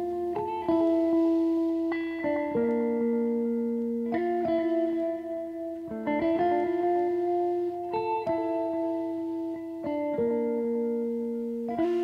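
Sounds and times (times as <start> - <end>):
slow plucked melody: 0.0 - 12.0.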